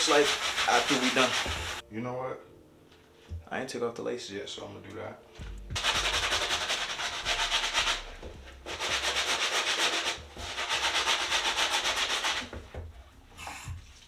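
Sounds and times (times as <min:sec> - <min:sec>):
stiff brush scrubbing a shoe: 0:00.0 - 0:01.8, 0:05.8 - 0:12.6.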